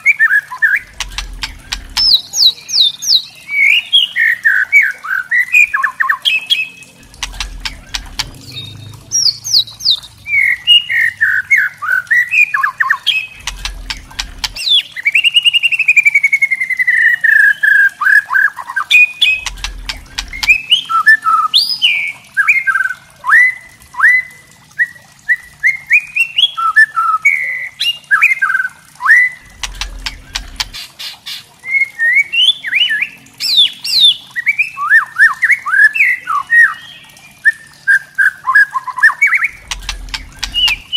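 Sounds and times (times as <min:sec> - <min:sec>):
rapid clicking rattles: 0:00.8 - 0:02.2, 0:07.0 - 0:10.3, 0:13.3 - 0:14.6, 0:19.3 - 0:20.6, 0:29.5 - 0:30.8, 0:39.5 - 0:40.9
bird singing whistled phrases: 0:31.6 - 0:40.9.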